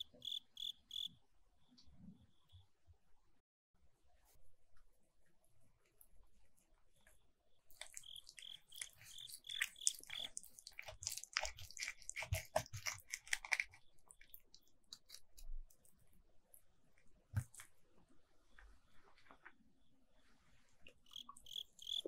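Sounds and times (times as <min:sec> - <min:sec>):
knife cutting sticky food: 0:07.7 - 0:16.0.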